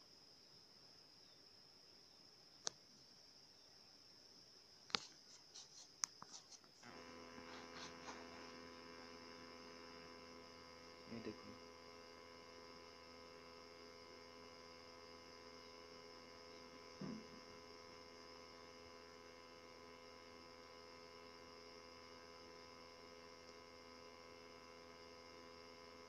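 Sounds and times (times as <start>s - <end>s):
electrical hum with faint tones: 3.7s - 26.0s
soft handling sound: 4.9s - 8.5s.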